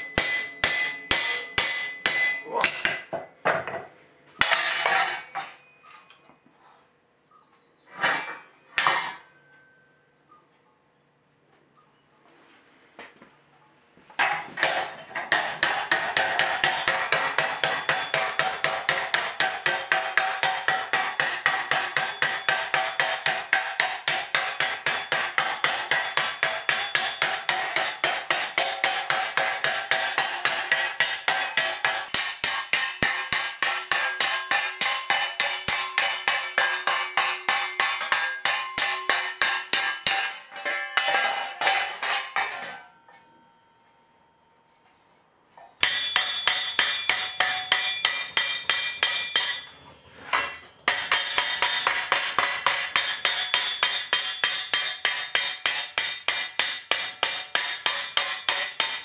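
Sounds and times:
hammer ringing on steel: 0:00.0 - 0:03.1, 0:14.6 - 0:44.4, 0:45.8 - 0:59.0.

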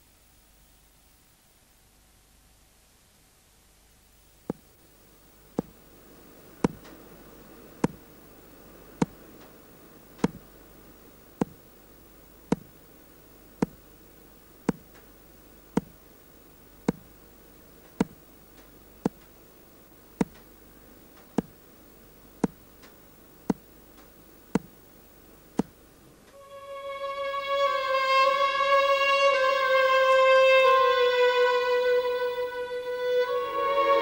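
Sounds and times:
pendulum clock ticking: 0:12.5 - 0:12.7.

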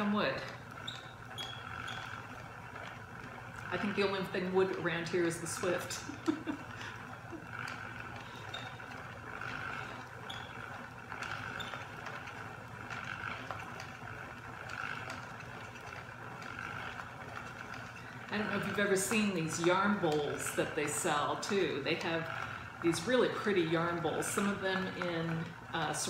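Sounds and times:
yarn winder plastic whirring: 0:00.0 - 0:26.0.

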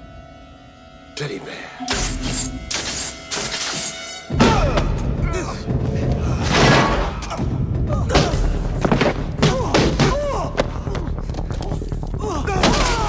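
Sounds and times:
music score: 0:00.0 - 0:08.1
men grunting and yelling: 0:09.4 - 0:13.0.

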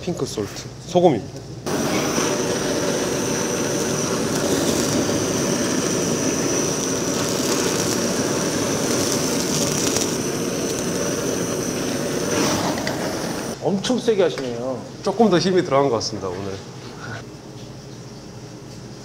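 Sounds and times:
blowtorch flame hissing: 0:01.6 - 0:13.6.

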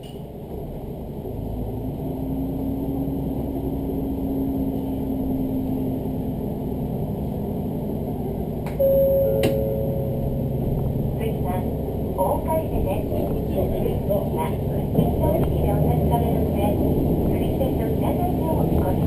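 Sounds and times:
train engine and wheel rumble: 0:00.0 - 0:19.0
train whine: 0:05.7 - 0:19.0
steady tone: 0:08.8 - 0:14.7
click: 0:09.4 - 0:09.6.

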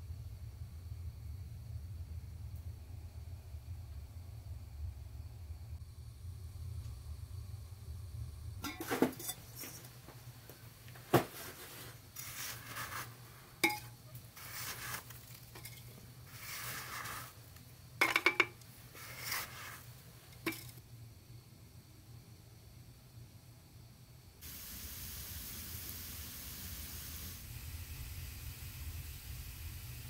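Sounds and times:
low steady hum: 0:00.0 - 0:30.0
metallic clacks of pots and utensils: 0:08.6 - 0:09.8, 0:13.6 - 0:14.0, 0:18.0 - 0:18.6, 0:20.4 - 0:20.8
scraping and rustling: 0:10.9 - 0:20.8.

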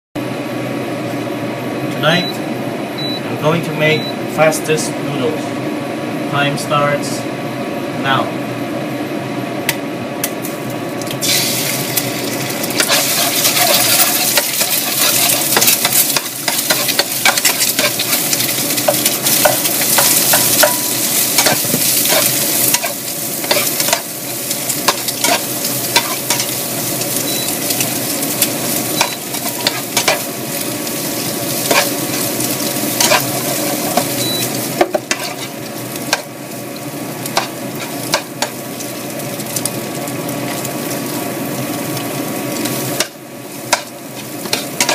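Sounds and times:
food sizzling in hot oil: 0:10.3 - 0:44.9
spatula scraping and knocking pan: 0:12.8 - 0:24.1, 0:24.8 - 0:26.5, 0:31.6 - 0:32.3, 0:33.0 - 0:34.1, 0:43.0 - 0:44.9.

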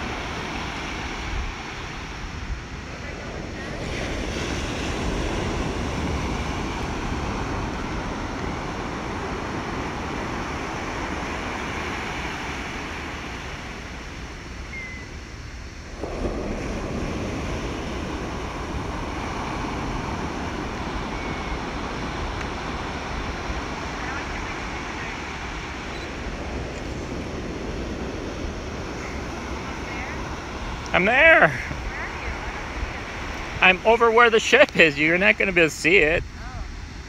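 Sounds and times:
surf: 0:00.0 - 0:37.0
wind: 0:00.0 - 0:37.0.

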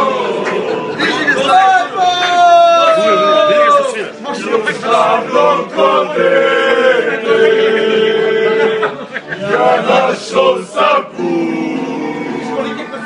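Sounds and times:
men singing in unison: 0:04.3 - 0:12.9.

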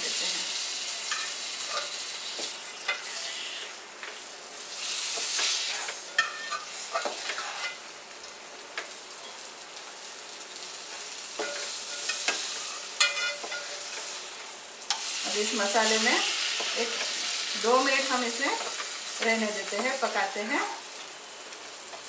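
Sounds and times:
masala sizzling in oil: 0:00.0 - 0:22.0
spatula scraping pan: 0:05.0 - 0:07.9, 0:11.4 - 0:15.1.

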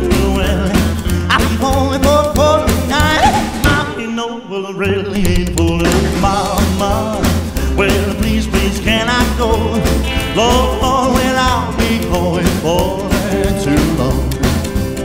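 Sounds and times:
rock and roll band playing: 0:00.0 - 0:04.2, 0:04.8 - 0:15.0.

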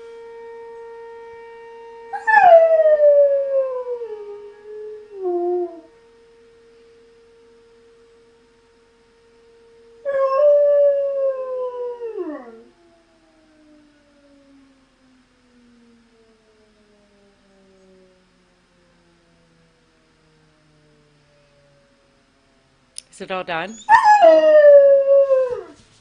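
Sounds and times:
warning siren tone: 0:00.0 - 0:26.0
dog howling: 0:02.2 - 0:05.9, 0:10.1 - 0:12.7, 0:23.7 - 0:25.8.

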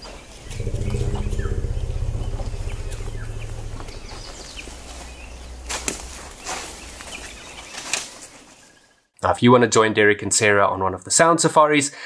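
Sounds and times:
small birds chirping: 0:00.0 - 0:09.0
elephant rumbling: 0:00.2 - 0:08.6.

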